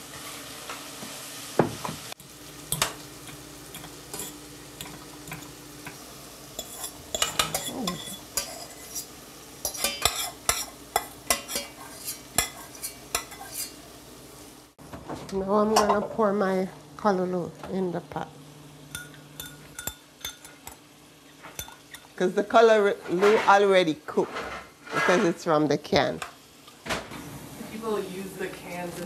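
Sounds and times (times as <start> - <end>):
low sizzle: 0.0 - 29.0
metal spoon scraping frying pan: 2.7 - 6.0, 6.6 - 13.8, 24.3 - 25.4.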